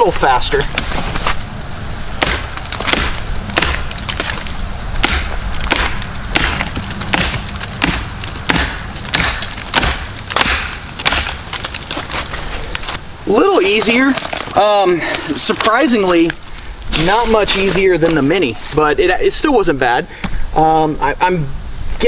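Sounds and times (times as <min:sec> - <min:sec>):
machete chopping into log: 0:02.2 - 0:04.4, 0:05.0 - 0:12.1.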